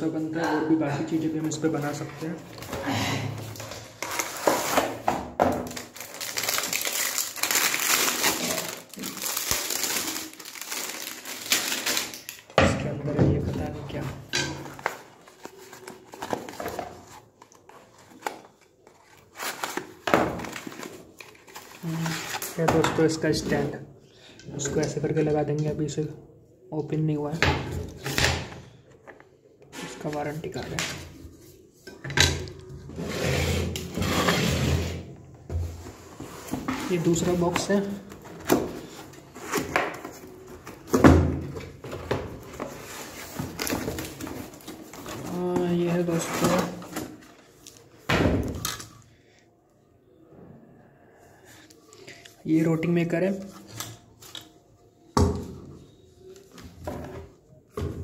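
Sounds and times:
plastic packaging rustling: 3.4 - 12.6, 13.9 - 23.3, 41.6 - 49.0.

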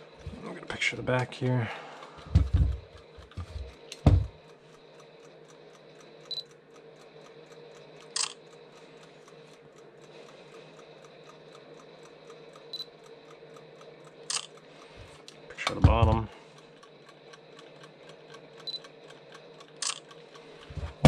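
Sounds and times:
mechanical timer ticking: 0.0 - 21.0
camera focus beep: 6.3 - 6.5, 8.2 - 8.4, 12.7 - 12.9
camera shutter click: 8.2 - 8.4, 19.8 - 20.0.

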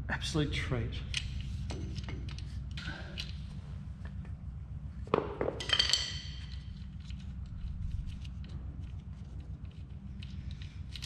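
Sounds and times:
low steady hum: 0.0 - 11.0
metal tools clinking: 5.6 - 7.2.

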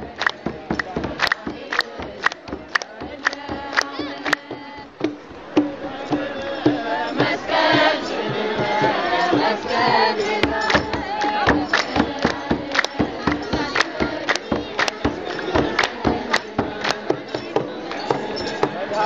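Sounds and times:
hand claps: 0.0 - 4.6, 10.4 - 18.8
crowd singing a hymn: 0.0 - 19.0.

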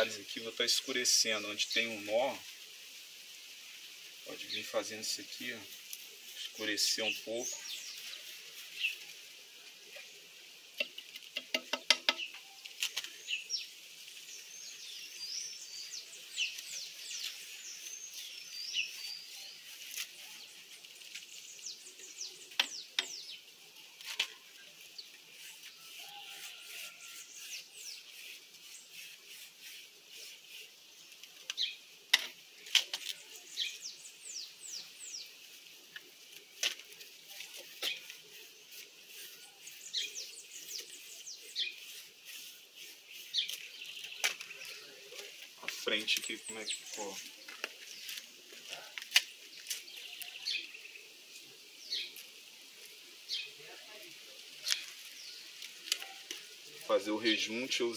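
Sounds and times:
birds chirping: 0.0 - 2.6, 4.2 - 57.9
sharp clicks and taps: 10.8 - 12.3.

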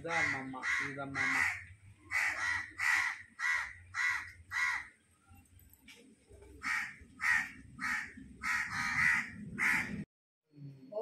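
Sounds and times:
crows cawing: 0.0 - 5.0, 6.6 - 10.0.

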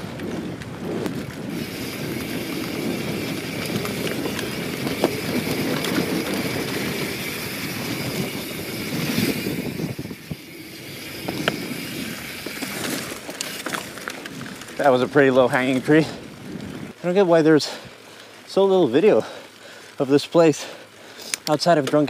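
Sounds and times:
bike rattling: 0.0 - 22.0
bike tyres rolling on dirt: 0.0 - 22.0
freehub buzzing: 1.5 - 14.0.

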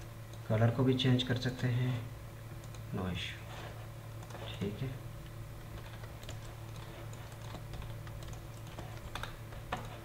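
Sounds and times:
steady low hum: 0.0 - 10.0
computer keyboard clicks: 5.8 - 10.0.

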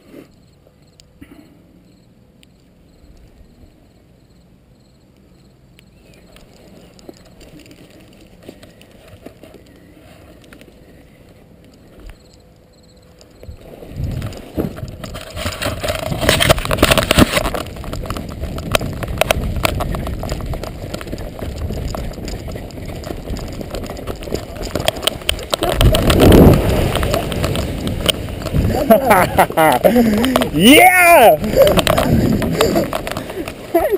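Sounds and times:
camera handling rustling and knocks: 14.2 - 19.8, 31.6 - 33.7.

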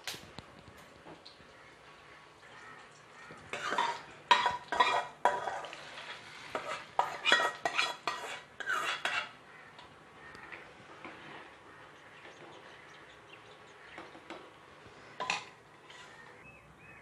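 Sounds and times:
hot oil sizzling: 1.2 - 9.4
metal spatula scraping a pan: 3.5 - 9.7, 10.9 - 12.7, 15.0 - 16.4.

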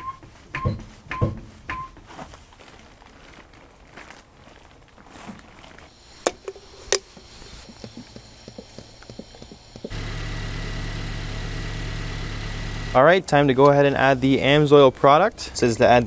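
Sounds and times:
car engine idling: 7.6 - 13.1.

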